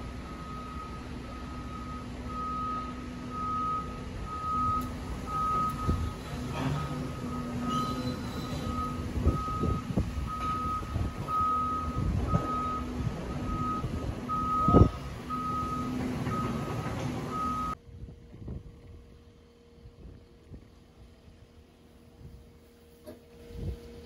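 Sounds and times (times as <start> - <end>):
reversing alarm beeping: 0.0 - 17.8
low machinery rumble: 0.0 - 24.0.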